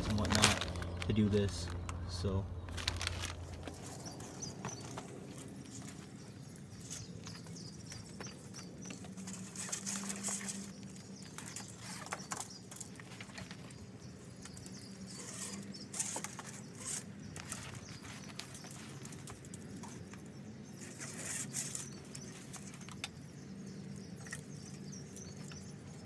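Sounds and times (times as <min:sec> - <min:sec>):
hands handling wiring: 0:00.0 - 0:23.2
steady low hum: 0:00.0 - 0:26.0.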